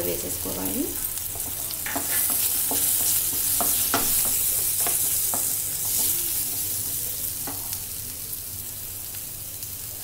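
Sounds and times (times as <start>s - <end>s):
vegetables sizzling in oil: 0.0s - 10.0s
spatula knocking and scraping pan: 1.2s - 7.8s.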